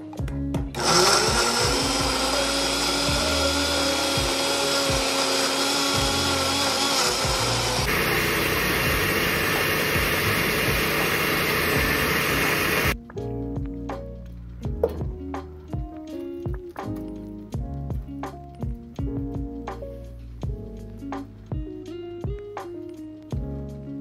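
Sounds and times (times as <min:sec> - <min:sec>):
blender running: 0:00.7 - 0:13.0.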